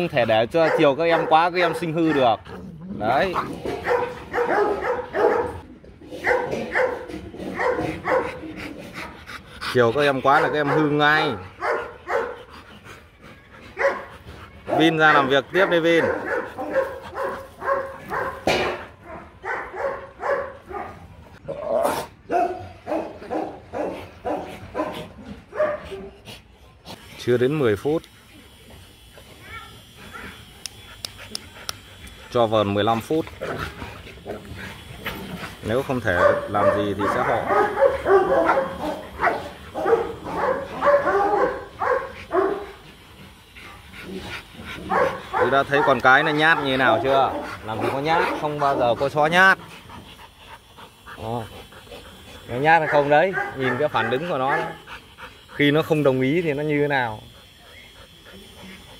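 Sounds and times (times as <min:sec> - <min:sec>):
dog barking: 0:00.5 - 0:02.4, 0:03.2 - 0:05.6, 0:06.2 - 0:08.4, 0:10.3 - 0:12.4, 0:13.8 - 0:21.0, 0:22.3 - 0:26.2, 0:36.0 - 0:42.8, 0:44.8 - 0:49.0, 0:52.7 - 0:54.8.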